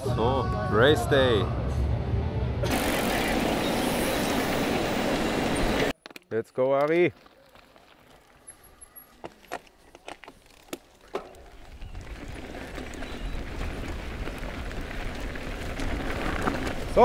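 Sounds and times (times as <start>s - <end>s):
tyres rumbling on dirt: 11.2s - 17.0s.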